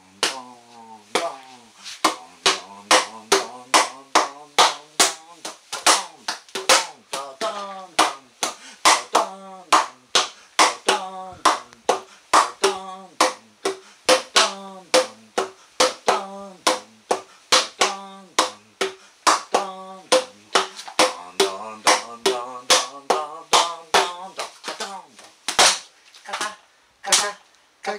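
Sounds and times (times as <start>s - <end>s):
plastic bottles striking drum: 2.0s - 8.2s, 8.8s - 24.9s.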